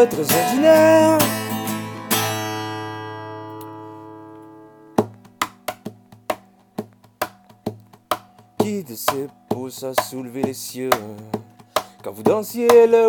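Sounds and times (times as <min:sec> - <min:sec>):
acoustic guitar chord ringing: 0:00.0 - 0:05.4
percussive hits on guitar: 0:04.9 - 0:13.0.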